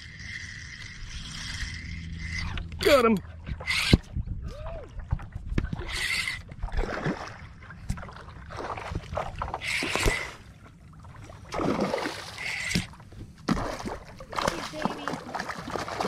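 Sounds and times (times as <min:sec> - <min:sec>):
fishing reel being cranked: 0:00.0 - 0:04.1, 0:05.8 - 0:06.5, 0:09.6 - 0:10.4, 0:12.3 - 0:12.9
wind rumble on microphone: 0:00.0 - 0:10.3.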